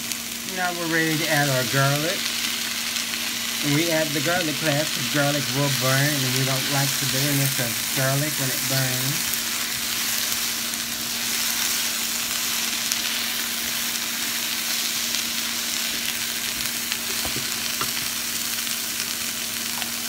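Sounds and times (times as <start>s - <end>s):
vegetables sizzling in frying pan: 0.0s - 20.0s.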